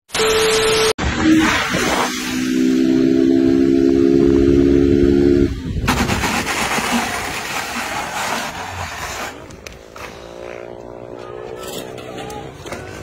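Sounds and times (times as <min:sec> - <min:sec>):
motorcycle engine revving high: 0:01.0 - 0:06.3
motorcycle scraping along asphalt: 0:05.8 - 0:13.0.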